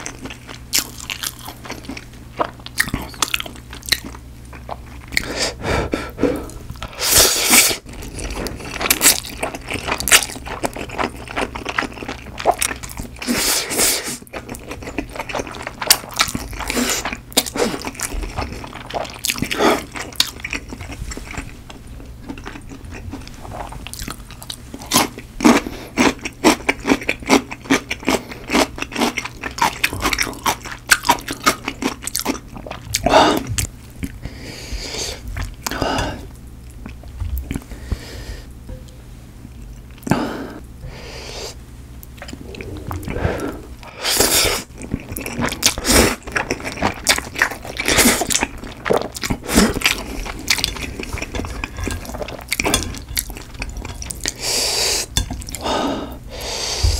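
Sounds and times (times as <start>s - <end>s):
wet chewing: 42.0s - 55.7s.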